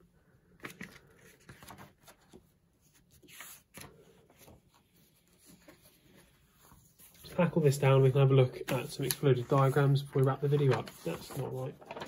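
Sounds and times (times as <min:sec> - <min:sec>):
paper rustling and sliding: 0:00.6 - 0:12.0.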